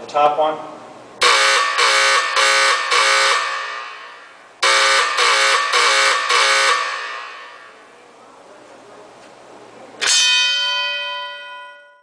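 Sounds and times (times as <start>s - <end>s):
fire alarm bell strokes: 1.2s - 7.8s.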